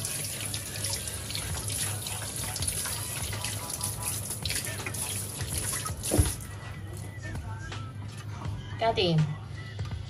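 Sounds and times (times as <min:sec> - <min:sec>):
tap water running and splashing: 0:00.0 - 0:07.1.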